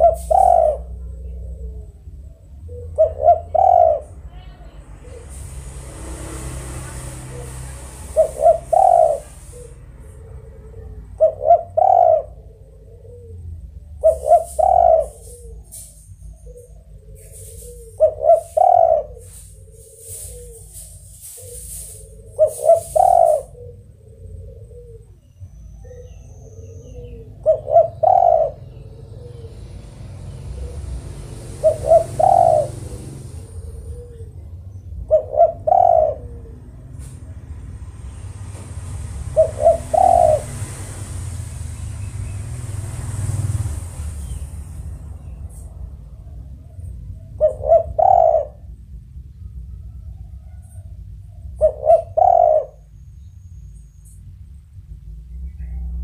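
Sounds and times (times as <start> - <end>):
dove cooing: 0.0 - 4.2, 6.2 - 53.0
steady low rumble: 18.9 - 56.0.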